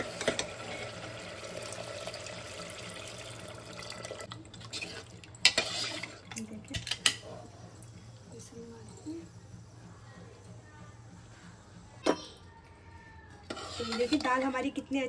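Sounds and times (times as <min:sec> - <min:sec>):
water pouring into pot: 0:00.0 - 0:06.4.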